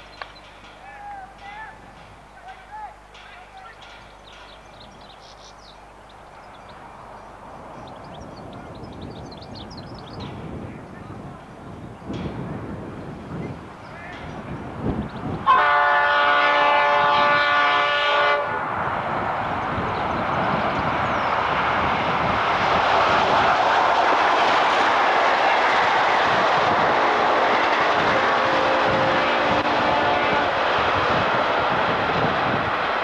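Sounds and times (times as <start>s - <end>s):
train engines working: 0.0s - 33.0s
train wheels on rails: 0.0s - 33.0s
diesel locomotive horn: 15.4s - 18.7s, 26.9s - 30.9s.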